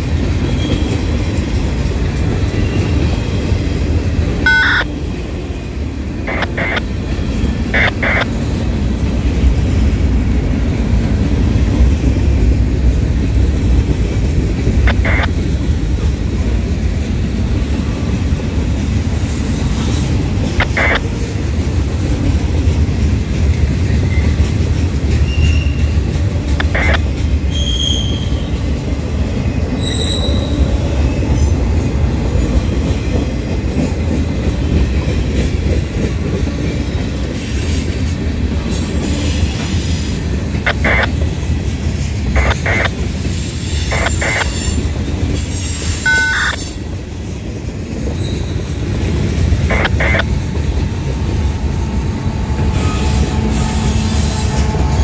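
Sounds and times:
diesel locomotive hum: 0.0s - 55.0s
train wheels rumbling on rail: 0.0s - 55.0s
high wheel squeals: 27.5s - 28.5s, 29.8s - 30.6s, 48.1s - 48.8s.

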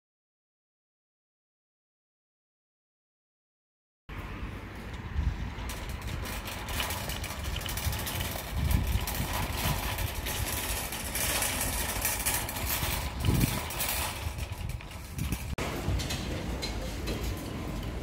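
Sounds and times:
road traffic hiss: 4.1s - 13.2s, 15.6s - 18.0s
tanker truck rumbling by: 4.1s - 18.0s.

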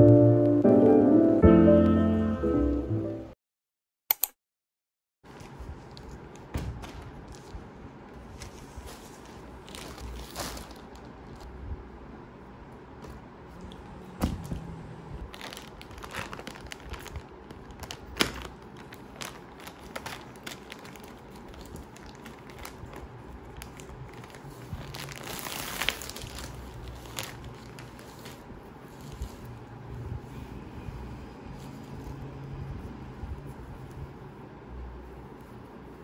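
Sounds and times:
crinkling: 5.3s - 11.5s, 15.2s - 29.8s.

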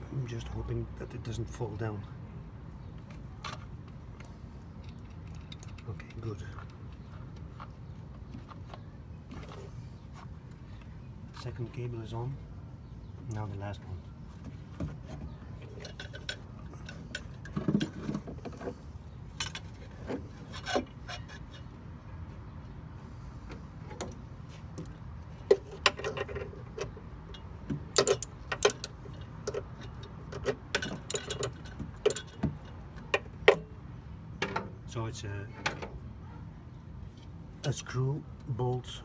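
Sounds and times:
small metallic clicks and clinks: 4.8s - 6.8s, 25.9s - 32.8s.

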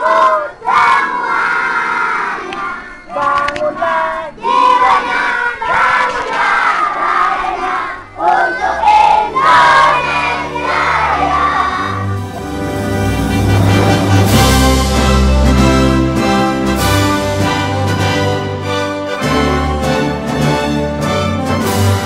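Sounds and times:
children chanting in unison: 0.0s - 12.3s.

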